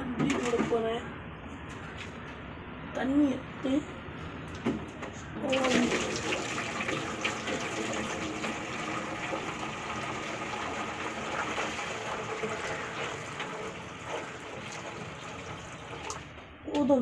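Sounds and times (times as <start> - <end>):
water pouring into plastic tub: 5.4 - 16.4.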